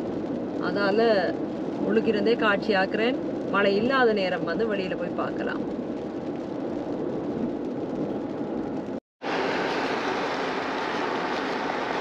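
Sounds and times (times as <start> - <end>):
car road and engine noise: 0.0 - 12.0
wind rushing: 5.4 - 12.0
choppy water at shore: 9.2 - 12.0.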